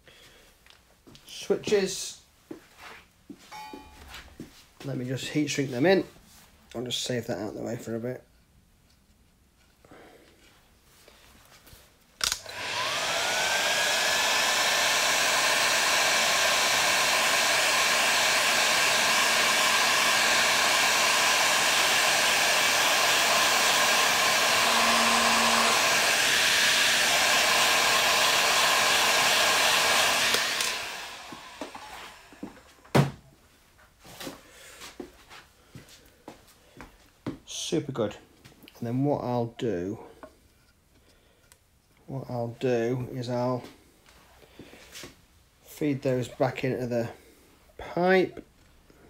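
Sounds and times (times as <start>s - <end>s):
heat gun switch click: 12.2s - 12.7s
heat gun fan blowing: 12.2s - 33.1s.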